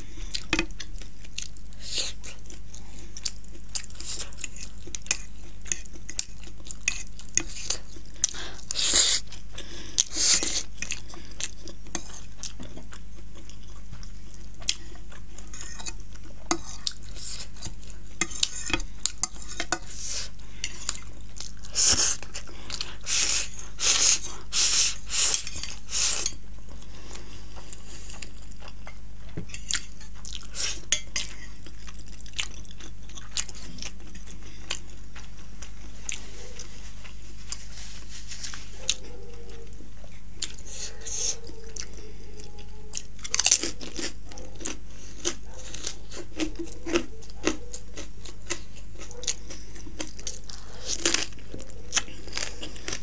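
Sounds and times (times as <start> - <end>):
chewing: 0.1 - 37.7, 38.4 - 53.0
fork scraping on a plate: 15.5 - 21.0, 23.1 - 26.4.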